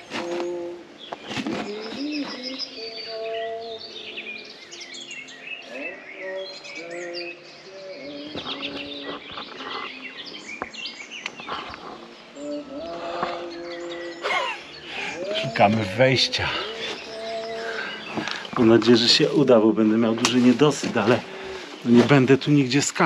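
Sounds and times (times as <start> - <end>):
birds singing and chirping: 0.0 - 23.0
low drawn-out calls: 14.8 - 22.0.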